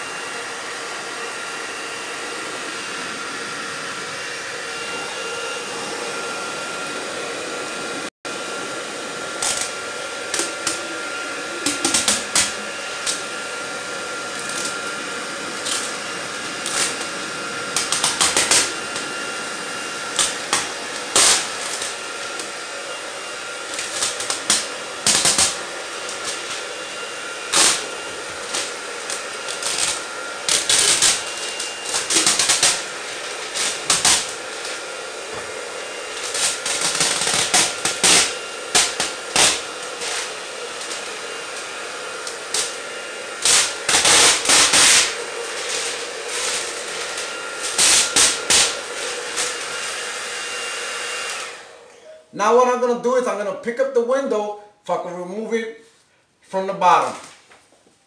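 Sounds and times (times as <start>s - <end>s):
hair dryer blowing: 0.0s - 55.8s
window film peeling and crackling: 9.0s - 13.7s, 14.3s - 22.5s, 23.6s - 26.8s, 27.5s - 35.5s, 36.1s - 41.0s, 42.2s - 42.8s, 43.4s - 49.7s.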